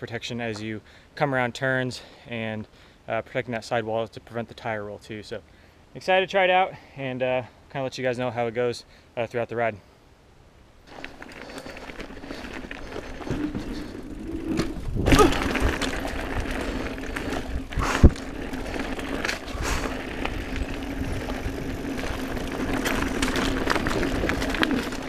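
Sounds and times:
bike tyres rolling over dirt: 10.8 - 25.0
bike rattling: 10.9 - 25.0.

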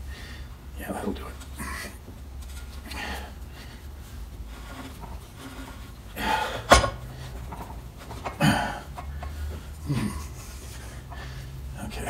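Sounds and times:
metal parts scraping and knocking: 4.5 - 6.0, 6.6 - 9.4.

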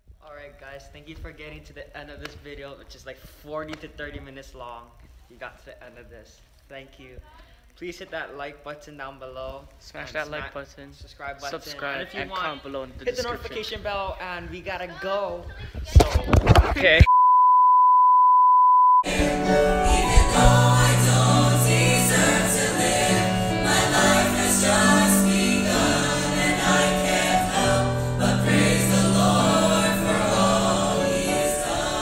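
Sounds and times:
high test-tone beep: 17.1 - 19.1
worship music with singing: 19.0 - 32.0.

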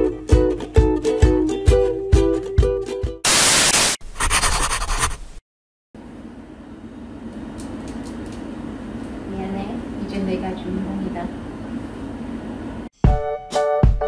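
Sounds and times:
upbeat plucked-string music: 0.0 - 3.2
loud hiss: 3.2 - 4.0
low kitchen hum: 6.0 - 12.9.

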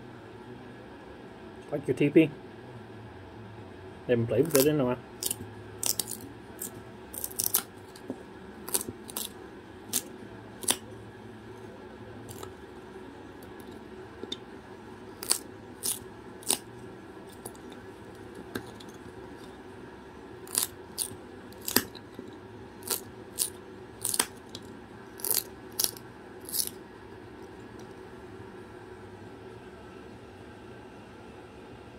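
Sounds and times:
faint steady hum: 0.0 - 31.9.

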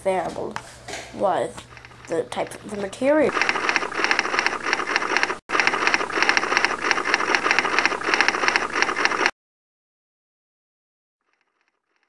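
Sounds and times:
typewriter clacking rapidly: 1.7 - 9.3.

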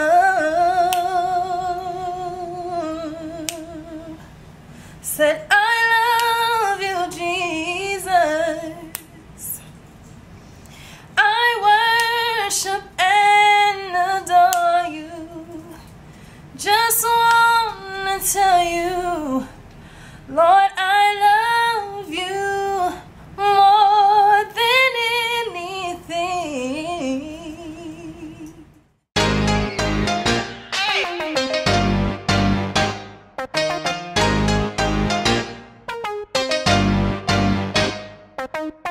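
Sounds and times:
woman singing unaccompanied: 0.0 - 4.3, 5.0 - 9.6, 11.2 - 15.9, 16.6 - 19.6, 20.3 - 28.7.

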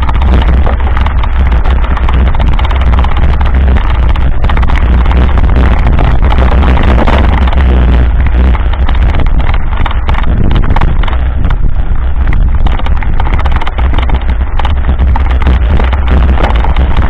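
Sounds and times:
bike rattling and knocking: 0.0 - 17.0
wind buffeting on microphone: 0.0 - 17.0.

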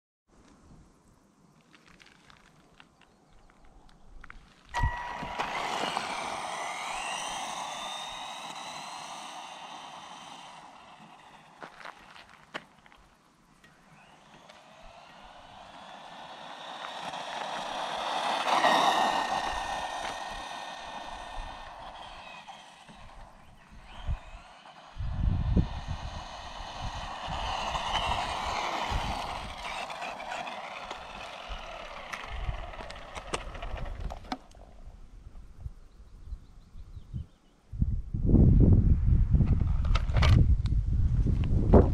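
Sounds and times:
toy car motor whining: 4.7 - 12.6, 13.6 - 34.7
wind buffeting microphone: 14.0 - 41.9.

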